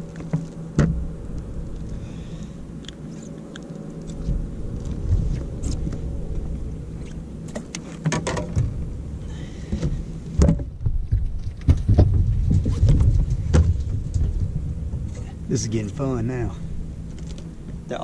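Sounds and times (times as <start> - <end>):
low wind and water rumble: 0.0 - 18.0
gear clicking and knocking on deck: 9.8 - 15.2.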